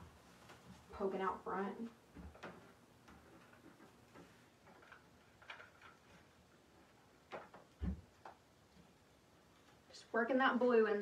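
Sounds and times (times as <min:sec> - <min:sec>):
light clicks and rustles of stems: 0:02.1 - 0:10.0.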